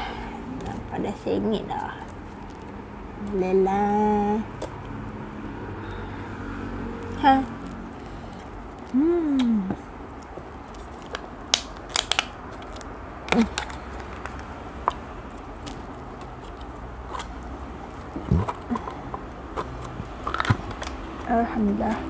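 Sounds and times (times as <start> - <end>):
plastic cup clicks and crackles: 11.0 - 15.0.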